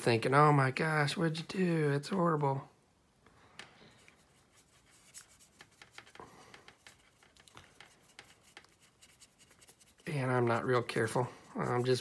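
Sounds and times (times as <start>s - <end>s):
paintbrush scrubbing on plastic: 3.9s - 12.0s.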